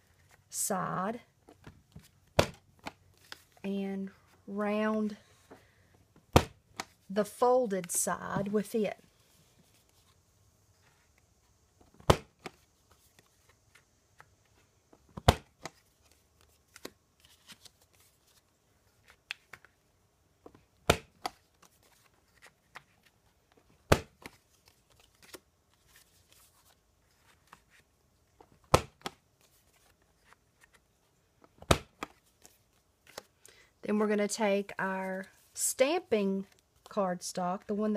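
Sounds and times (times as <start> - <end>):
paper rustling and sliding: 21.5 - 23.2.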